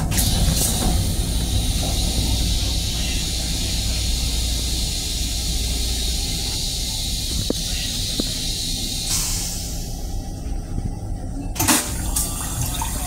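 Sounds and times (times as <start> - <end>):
toilet flushing: 0.0 - 10.1, 11.6 - 13.0
low steady rumble: 0.0 - 13.0.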